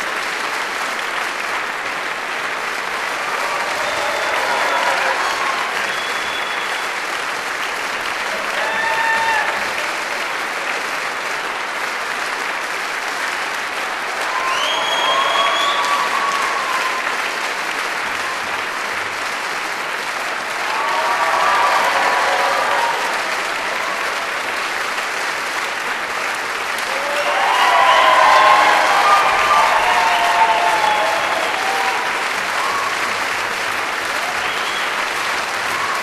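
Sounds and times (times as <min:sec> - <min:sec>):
audience applauding: 0:00.0 - 0:36.0
voices cheering: 0:03.0 - 0:07.1, 0:08.2 - 0:10.2, 0:13.8 - 0:18.8, 0:20.2 - 0:24.6, 0:26.8 - 0:36.0
high whoop: 0:08.4 - 0:09.7, 0:14.2 - 0:17.2, 0:20.6 - 0:24.0, 0:26.9 - 0:33.2.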